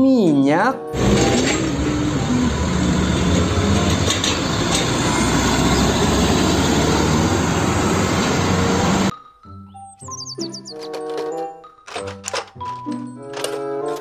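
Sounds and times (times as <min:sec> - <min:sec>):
tyre and road noise: 0:00.9 - 0:09.1
diesel truck engine rumble: 0:01.0 - 0:09.1.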